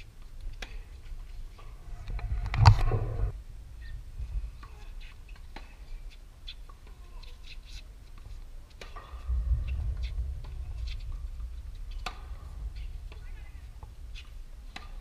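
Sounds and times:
wind on microphone: 1.5 - 5.3, 9.1 - 15.0
tennis ball struck and bouncing: 8.8 - 9.3, 11.9 - 12.5, 13.1 - 15.0.

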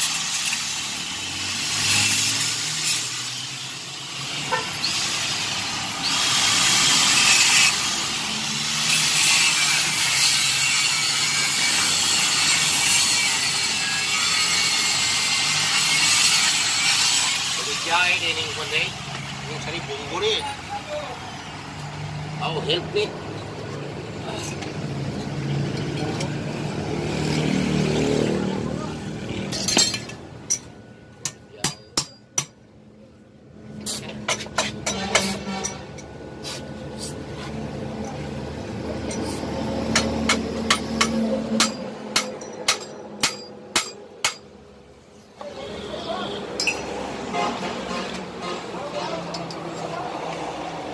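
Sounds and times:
angle grinder grinding metal: 0.0 - 20.4
hammer striking metal: 29.5 - 32.6, 39.9 - 44.6, 46.6 - 47.0.

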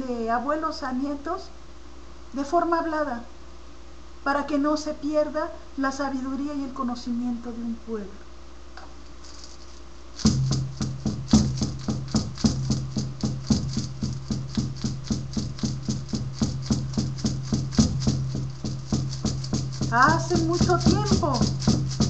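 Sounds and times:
rattle shaken in a beat: 9.0 - 22.0.

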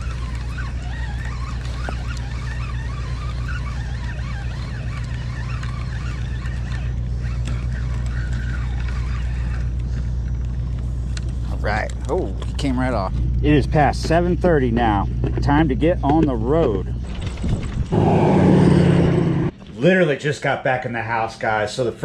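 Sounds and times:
fishing reel whirring: 0.0 - 11.8
low ship engine drone: 0.0 - 19.8.

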